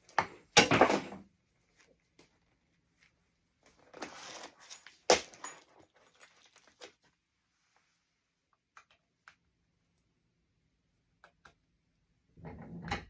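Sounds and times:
rustle of small objects: 0:02.9 - 0:08.2.

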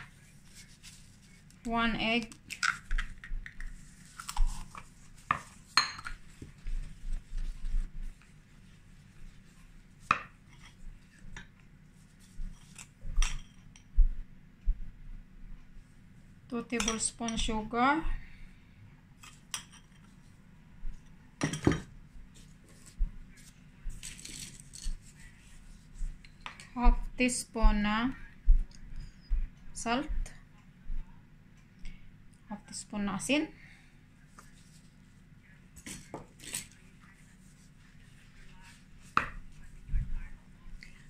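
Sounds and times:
utensils tapping on bowl: 0:05.3 - 0:06.2, 0:16.7 - 0:17.6
spoon clinking against glass bowl: 0:05.8 - 0:06.2.

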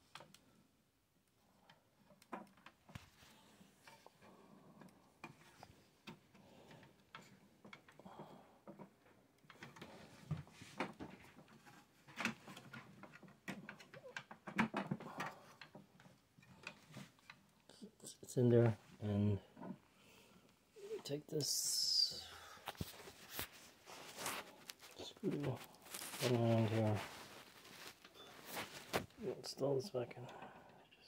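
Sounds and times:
hands handling computer parts: 0:08.6 - 0:17.5, 0:22.6 - 0:29.7.

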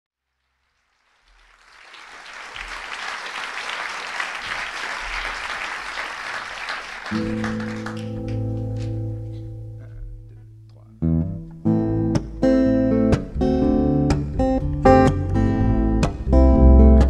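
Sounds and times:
audience applause: 0:00.6 - 0:09.0.

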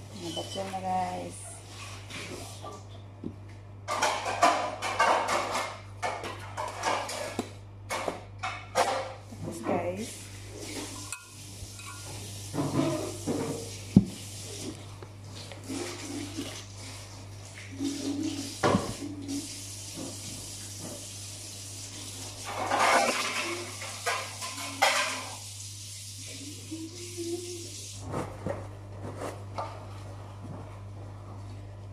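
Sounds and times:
utensils and bowls clinking: 0:00.1 - 0:01.4, 0:10.6 - 0:13.8, 0:22.4 - 0:25.4.

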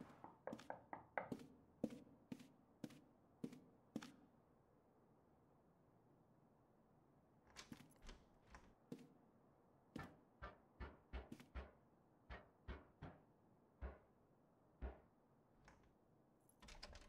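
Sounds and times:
door lock and handle clicking: 0:16.6 - 0:17.0.

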